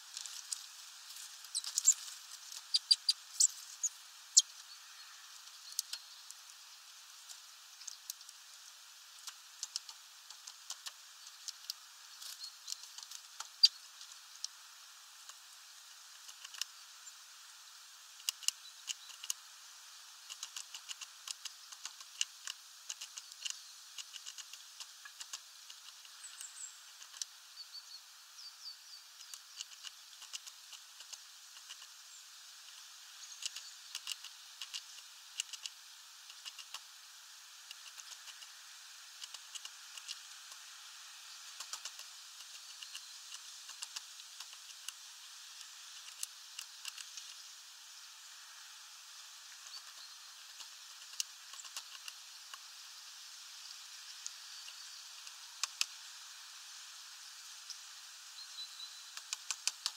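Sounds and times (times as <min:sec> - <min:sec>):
steady hiss: 0:00.0 - 0:59.9
bird pecking seeds on wooden tray: 0:00.2 - 0:04.5, 0:09.2 - 0:14.5, 0:18.2 - 0:19.5, 0:20.1 - 0:27.4, 0:29.2 - 0:32.0, 0:32.7 - 0:47.4, 0:49.5 - 0:52.7, 0:54.1 - 0:56.0, 0:59.1 - 0:59.9
faint high bird chirps: 0:01.4 - 0:06.3, 0:12.1 - 0:12.8, 0:13.4 - 0:13.9, 0:26.1 - 0:29.7, 0:58.3 - 0:59.2.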